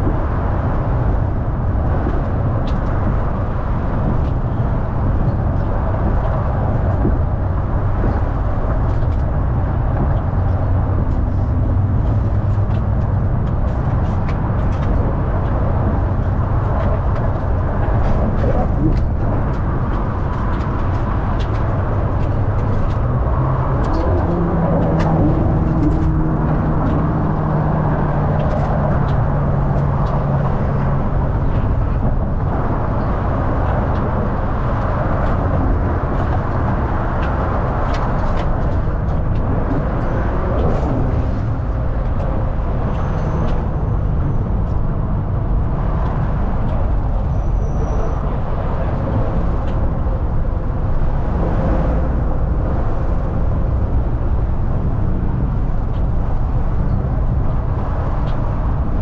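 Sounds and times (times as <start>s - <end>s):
rattles and clicks: 0.0s - 27.2s
bus engine and road noise: 0.0s - 59.0s
low steady drone: 0.0s - 59.0s.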